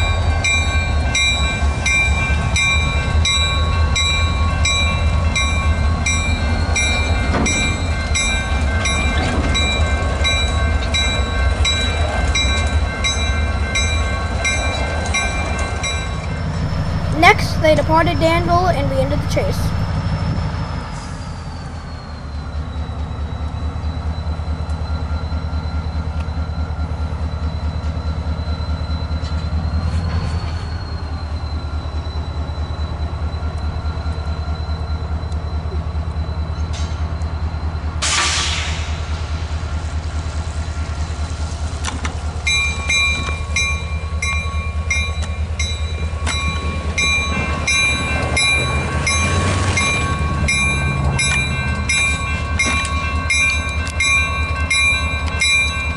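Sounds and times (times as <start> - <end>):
crossing bell ringing: 0.0 - 19.9, 42.5 - 55.9
locomotive engine drone: 15.8 - 29.8.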